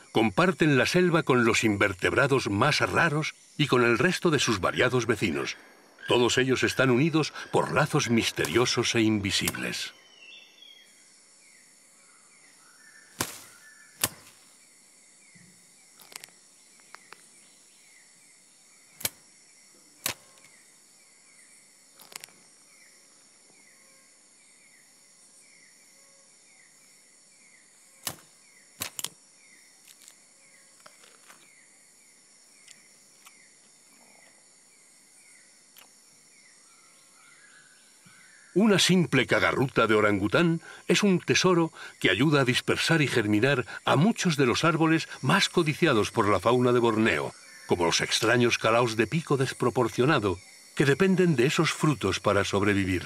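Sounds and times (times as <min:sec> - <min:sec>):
sharp snapping cracks: 0:08.3 - 0:08.7, 0:09.4 - 0:09.7, 0:13.2 - 0:14.5, 0:16.0 - 0:17.2, 0:19.0 - 0:19.3, 0:20.0 - 0:20.6, 0:22.0 - 0:22.4, 0:28.0 - 0:29.2, 0:29.9 - 0:30.2.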